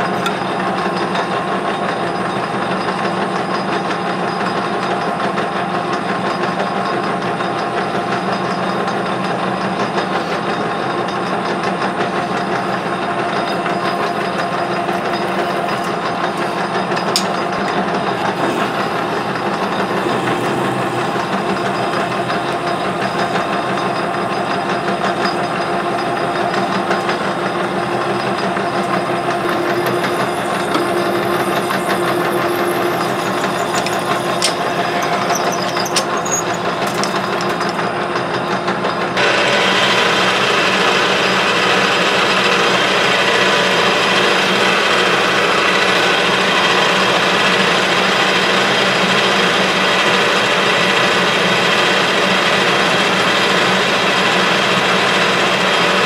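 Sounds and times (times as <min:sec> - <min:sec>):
metal lathe humming: 0:05.9 - 0:56.0
drill boring into metal rod: 0:12.5 - 0:38.0.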